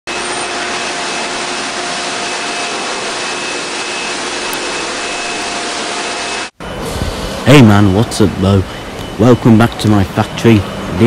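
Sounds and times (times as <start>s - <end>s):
loud machinery rushing noise: 0.1s - 11.0s
faint whining tones: 2.5s - 11.0s.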